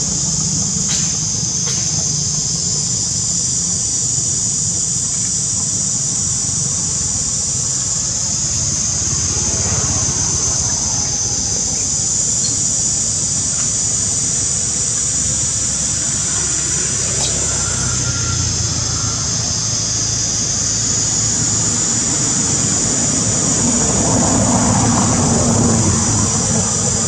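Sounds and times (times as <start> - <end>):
insect chorus buzzing: 0.0 - 27.0.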